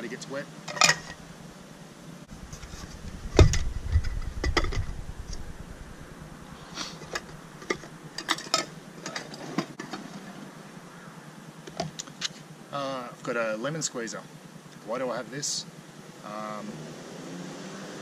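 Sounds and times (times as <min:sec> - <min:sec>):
camping gear clicks and knocks: 0:00.6 - 0:01.2, 0:06.9 - 0:10.3
dull knock and low rumble: 0:02.3 - 0:06.2.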